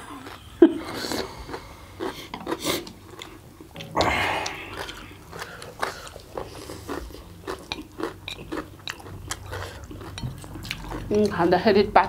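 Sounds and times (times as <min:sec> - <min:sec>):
chewing and slurping noodles: 0:00.0 - 0:11.6.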